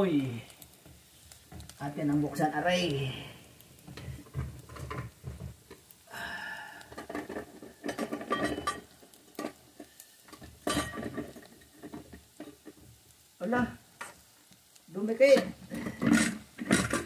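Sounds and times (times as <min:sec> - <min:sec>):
metal lid clank: 0:07.8 - 0:08.9.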